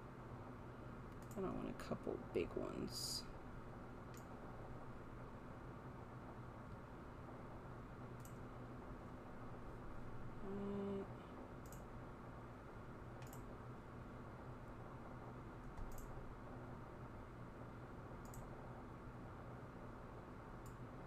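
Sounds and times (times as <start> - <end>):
computer mouse clicking: 1.1 - 1.4, 4.1 - 4.3, 8.2 - 8.4, 11.6 - 11.9, 13.2 - 13.5, 15.6 - 16.1, 18.2 - 18.5, 20.6 - 20.8.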